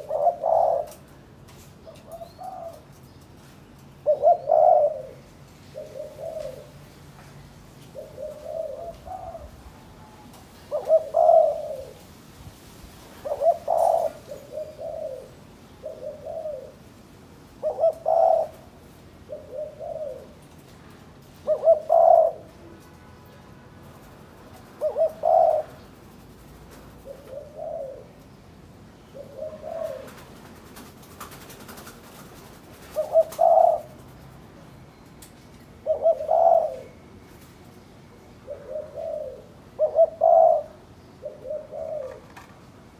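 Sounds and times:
dove cooing: 0.0 - 1.1, 1.8 - 3.0, 4.0 - 6.9, 7.9 - 12.1, 13.1 - 16.9, 17.6 - 20.4, 21.4 - 22.7, 24.7 - 26.0, 26.9 - 28.3, 29.0 - 34.3, 35.8 - 37.0, 38.4 - 42.6.

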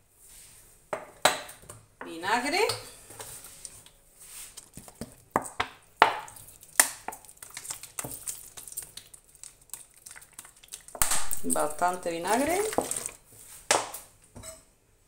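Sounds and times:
vinegar splashing onto peppers: 6.1 - 13.2.

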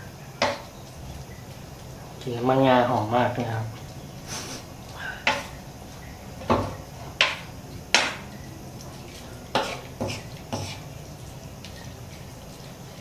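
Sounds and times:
wooden spatula scraping a pan: 9.1 - 10.9.

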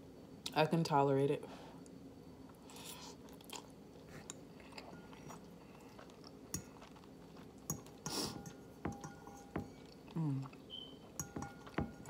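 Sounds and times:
chewing noodles: 2.7 - 8.2
metal fork clinking on bowl: 7.7 - 9.9, 11.2 - 12.0.

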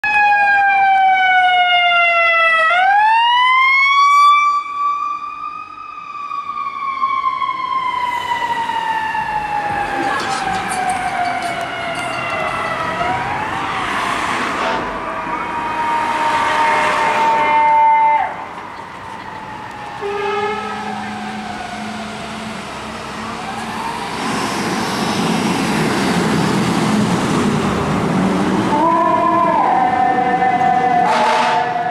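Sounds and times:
ambulance siren wailing: 0.0 - 27.2, 28.6 - 31.9
truck engine and road noise: 0.0 - 31.9
horn blast: 20.0 - 20.8, 31.0 - 31.8.

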